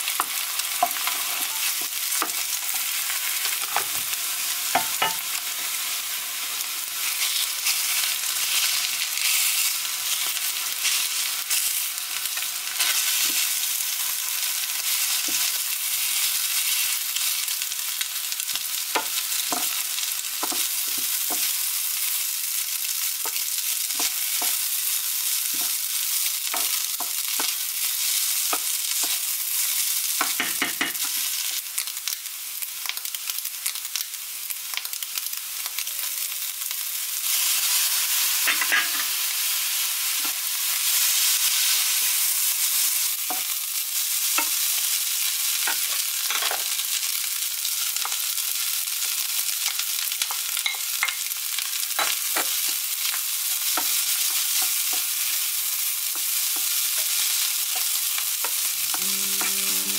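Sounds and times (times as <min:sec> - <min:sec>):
rice sizzling in a frying pan: 0:00.0 - 0:59.9
spoon knocking against pan: 0:04.8 - 0:05.2.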